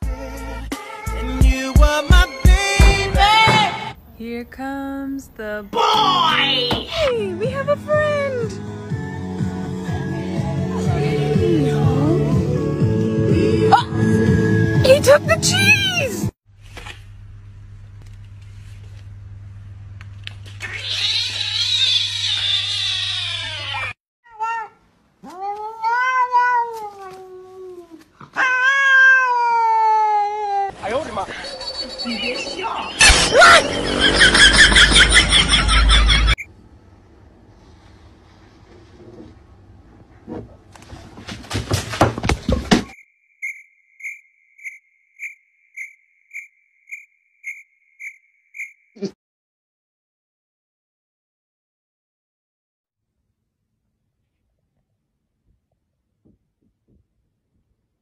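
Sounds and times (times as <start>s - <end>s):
kitten crying: 20.6s - 27.2s, 28.4s - 30.7s
cat meowing: 20.6s - 27.4s, 28.3s - 30.7s.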